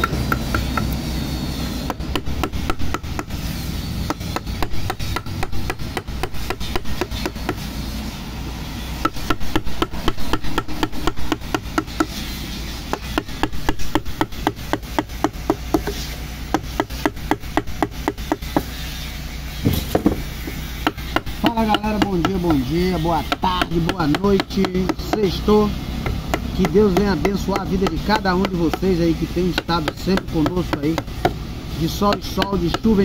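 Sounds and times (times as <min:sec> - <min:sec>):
mallet striking chisel handle: 0:00.0 - 0:01.0, 0:01.9 - 0:03.4, 0:04.0 - 0:07.6, 0:09.0 - 0:12.2, 0:12.9 - 0:18.7, 0:19.6 - 0:22.6, 0:23.2 - 0:25.3, 0:32.0 - 0:32.9.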